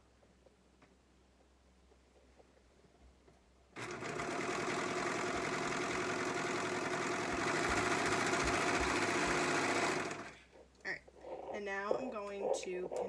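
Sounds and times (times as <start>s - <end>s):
serger sewing machine running: 3.8s - 10.4s.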